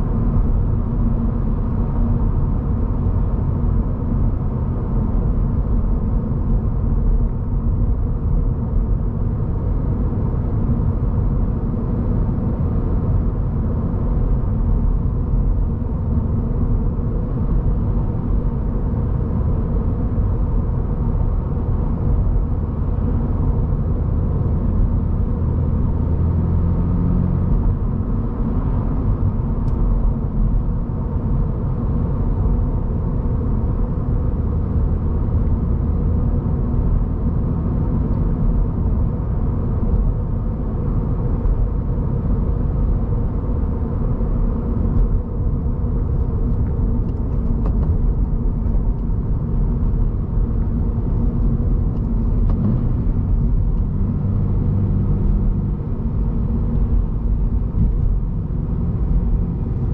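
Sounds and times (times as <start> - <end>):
car engine running evenly: 0.0 - 59.9
tyre and road noise: 39.8 - 59.9.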